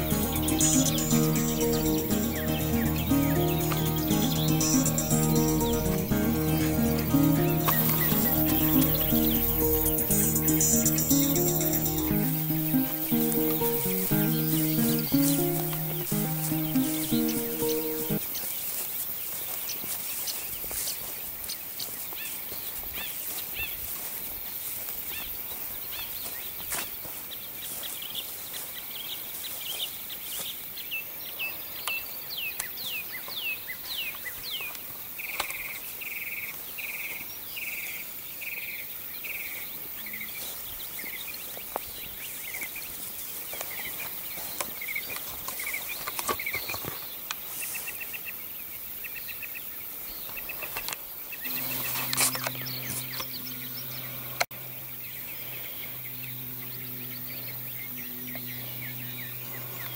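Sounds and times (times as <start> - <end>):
low steady hum: 0.0 - 18.2, 51.5 - 59.9
songbird singing: 0.0 - 18.8, 38.6 - 59.9.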